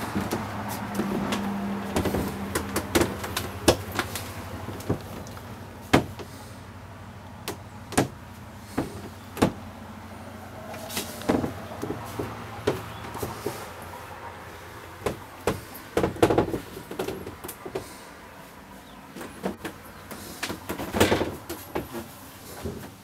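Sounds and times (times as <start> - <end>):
knocks and clicks in boat cabin: 0.1 - 6.3, 15.0 - 17.9.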